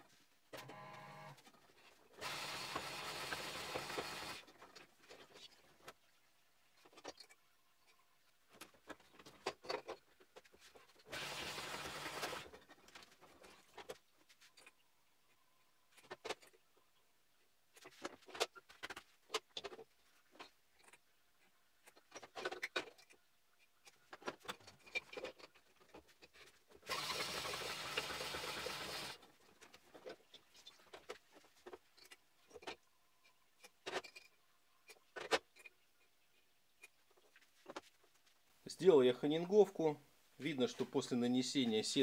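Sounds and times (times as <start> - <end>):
drill press honing whirr: 2.2 - 4.4.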